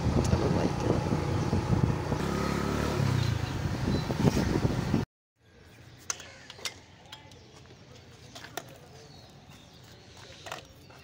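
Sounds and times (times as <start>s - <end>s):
motorcycle engine and wind: 0.0s - 5.1s.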